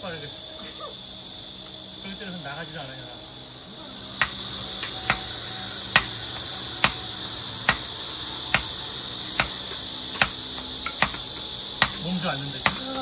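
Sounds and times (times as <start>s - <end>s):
insects buzzing: 0.0s - 13.0s
hammer striking bricks: 4.2s - 13.0s.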